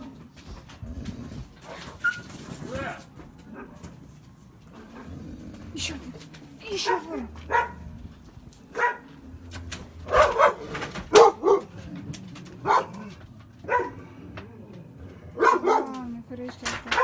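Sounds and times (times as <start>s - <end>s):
dog barking: 6.8s - 7.8s, 8.7s - 9.1s, 10.0s - 11.7s, 12.6s - 14.0s, 15.4s - 16.0s.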